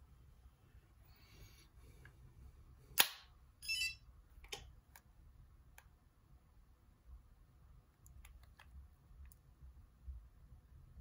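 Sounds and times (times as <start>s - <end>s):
electronic chirp from phone: 3.6s - 4.0s.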